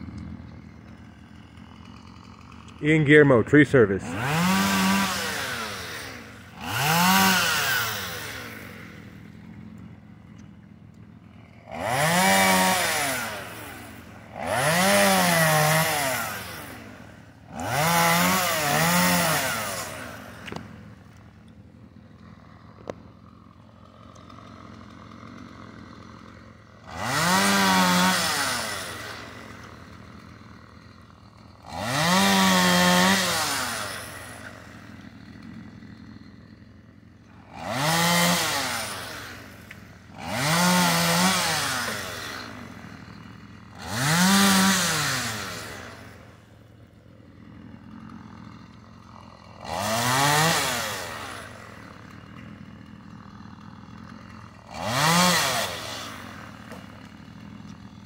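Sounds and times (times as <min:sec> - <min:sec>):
chainsaw idling: 0:00.0 - 0:58.0
chainsaw revving: 0:00.0 - 0:58.0.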